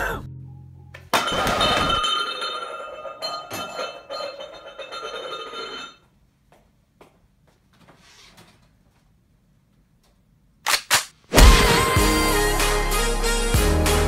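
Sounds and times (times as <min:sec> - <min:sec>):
bottle clinking on tile floor: 0:01.2 - 0:06.0.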